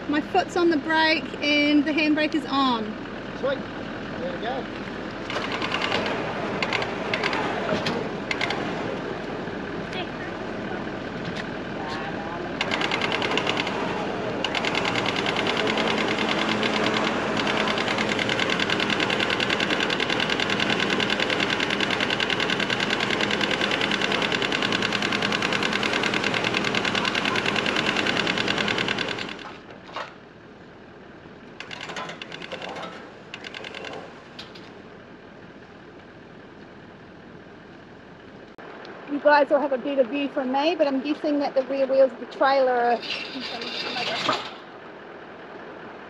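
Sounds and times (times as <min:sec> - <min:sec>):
electric winch motor buzzing: 0:02.2 - 0:29.8, 0:31.6 - 0:34.7.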